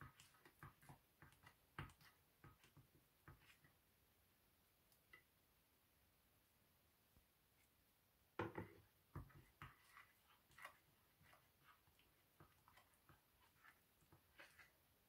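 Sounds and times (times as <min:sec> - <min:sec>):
spatula scraping sticky mixture: 0:00.0 - 0:03.9, 0:08.6 - 0:15.0
spatula knock: 0:08.4 - 0:09.8.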